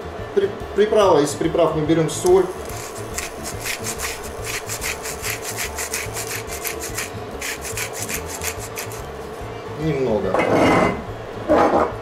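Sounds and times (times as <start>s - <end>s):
salt mill grinding: 2.2s - 9.4s.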